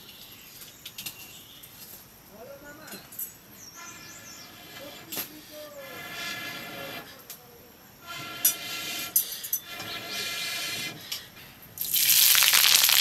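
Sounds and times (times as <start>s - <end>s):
steam whistling from pot: 8.0s - 11.1s, 11.8s - 13.0s.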